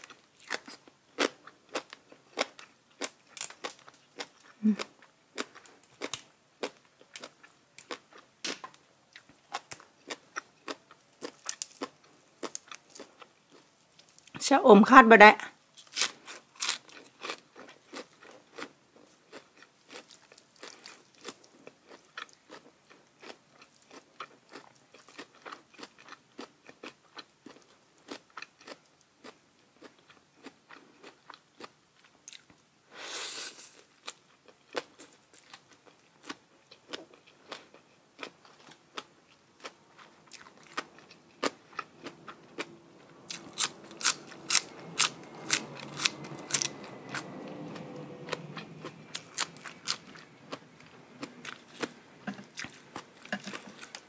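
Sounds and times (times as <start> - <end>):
person chewing crunchy food: 0.0 - 14.3, 15.7 - 54.0.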